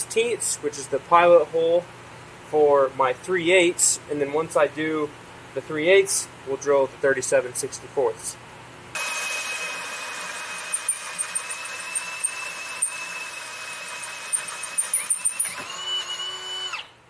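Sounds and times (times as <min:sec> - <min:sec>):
power drill whining: 0:09.0 - 0:17.0.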